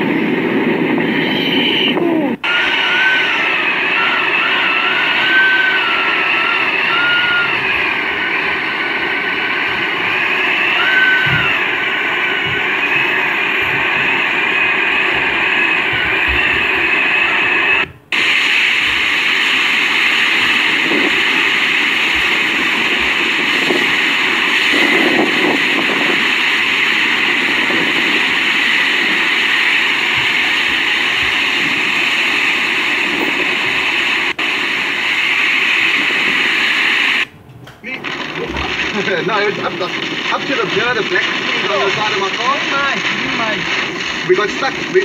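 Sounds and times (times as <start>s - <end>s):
strong wind: 0.0s - 45.0s
driving rain: 2.4s - 18.0s, 18.8s - 34.6s, 38.0s - 45.0s.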